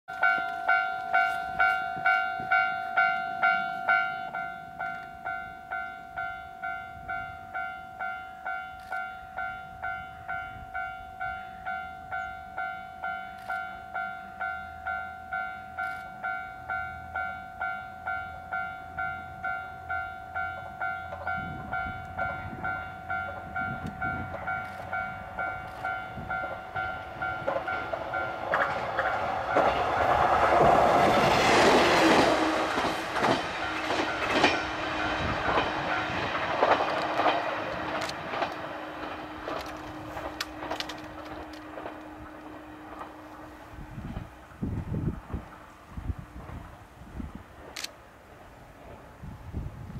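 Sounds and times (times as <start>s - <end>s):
level-crossing warning bell: 0.1s - 44.4s
railcar engine: 0.1s - 49.9s
train wheel clatter: 20.6s - 44.3s.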